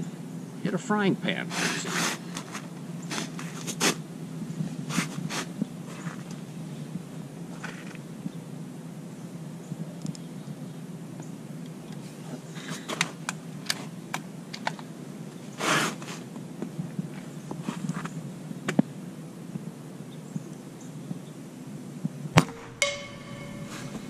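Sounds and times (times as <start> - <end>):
clicks and rustles of handling rifle: 11.9 - 14.9
metal pan target ringing: 22.4 - 24.0.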